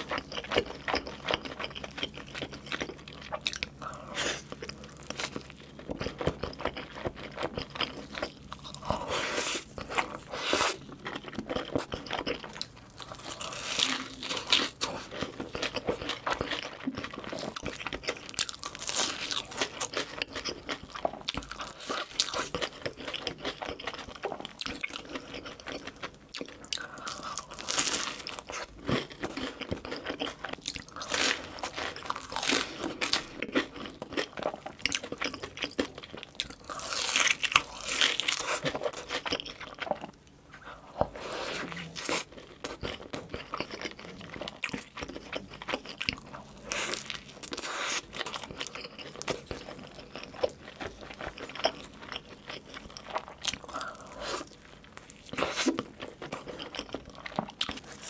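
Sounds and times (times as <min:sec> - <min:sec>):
crunchy bites and chewing: 0:00.0 - 0:58.0.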